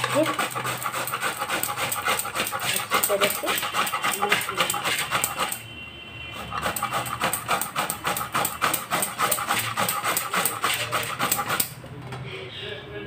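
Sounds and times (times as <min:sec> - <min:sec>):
carrot rasping on a grater: 0:00.0 - 0:05.6, 0:06.4 - 0:11.8.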